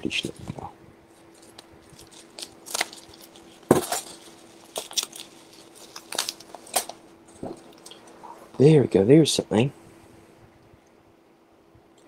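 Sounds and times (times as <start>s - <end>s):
plastic packaging crinkling: 0.2s - 8.2s.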